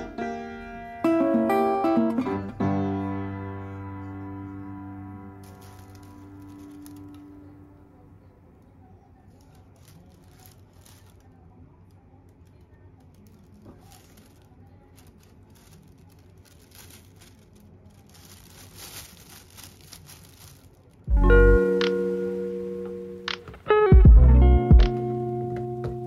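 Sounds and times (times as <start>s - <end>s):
plucked guitar chord: 0.0s - 7.7s, 21.1s - 26.0s
plastic bag rustling: 5.2s - 8.1s, 9.2s - 11.5s, 13.0s - 22.1s.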